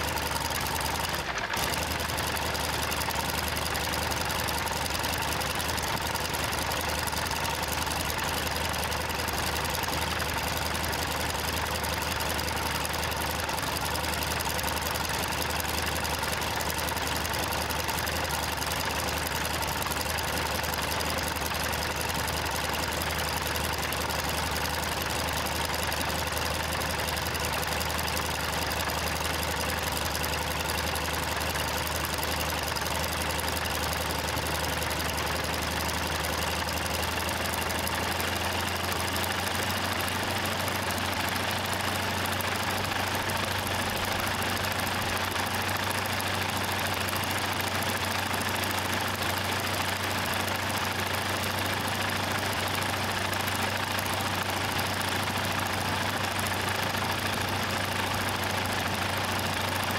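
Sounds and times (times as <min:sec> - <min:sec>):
radial engine and propeller running: 0:00.0 - 0:59.9.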